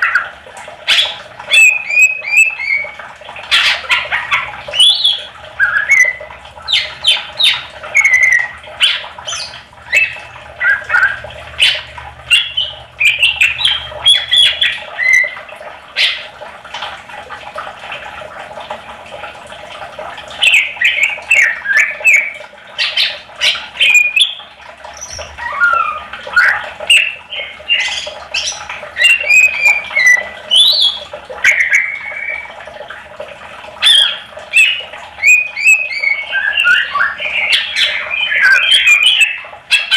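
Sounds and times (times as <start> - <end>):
bird singing chirps and whistles: 0.9 - 3.0, 4.7 - 15.4, 20.4 - 24.4, 25.0 - 32.5, 33.8 - 39.9.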